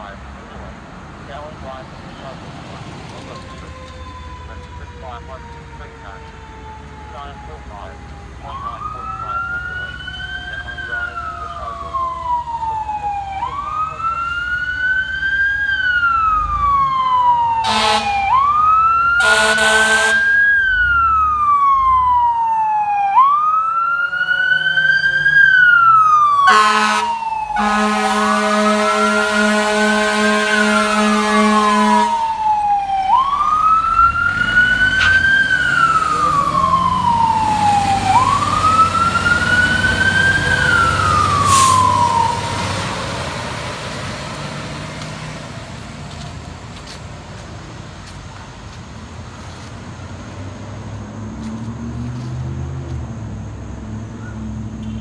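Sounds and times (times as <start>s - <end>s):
fire truck wail siren: 0.0s - 53.2s
air horn blasts: 17.6s - 18.3s, 19.2s - 20.4s, 26.5s - 32.3s, 41.4s - 42.1s, 54.8s - 55.0s.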